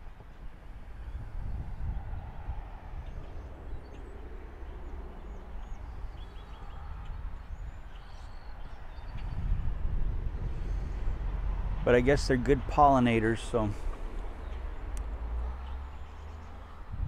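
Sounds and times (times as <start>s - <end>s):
low rumble: 1.0s - 17.0s
bird chirps: 3.0s - 9.5s.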